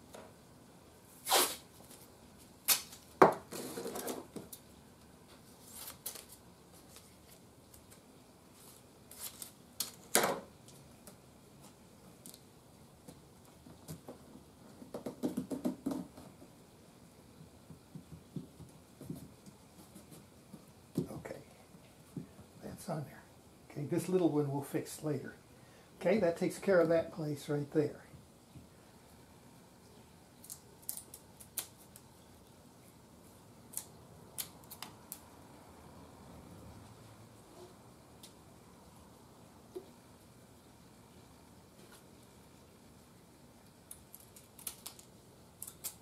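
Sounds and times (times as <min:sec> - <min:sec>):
wood and tools clicking and tapping: 0:13.0 - 0:16.5, 0:17.4 - 0:21.1.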